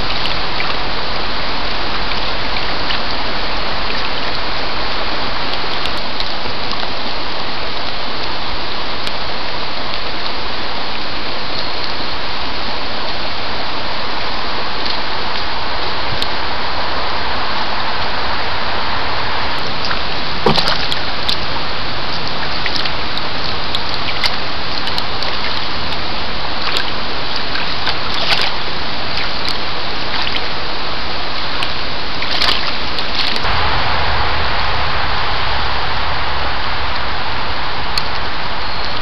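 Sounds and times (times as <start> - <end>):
steady rain-like hiss: 0.0 - 39.0
deer splashing in shallow water: 20.4 - 21.4
low rumble: 33.4 - 39.0.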